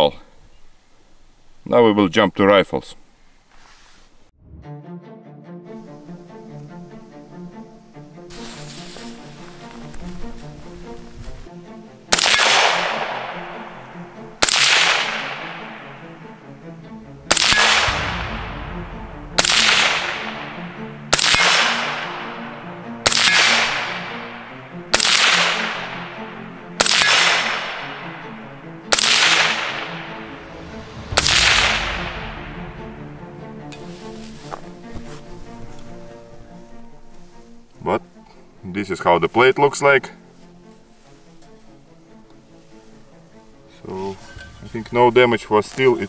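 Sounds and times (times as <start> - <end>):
rifle shots: 12.1 - 16.3, 17.3 - 33.0.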